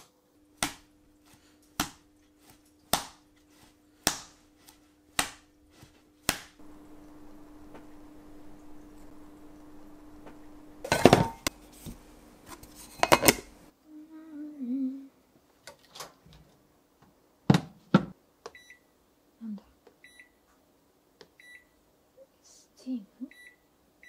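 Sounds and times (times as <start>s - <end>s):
steady low hum: 0.3s - 14.9s.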